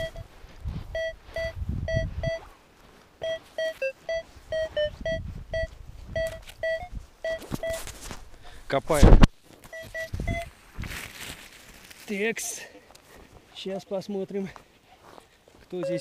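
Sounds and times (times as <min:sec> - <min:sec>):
metal detector short beeps: 0:00.0 - 0:00.3, 0:00.9 - 0:02.4, 0:03.2 - 0:07.9, 0:09.7 - 0:10.5, 0:15.8 - 0:16.0.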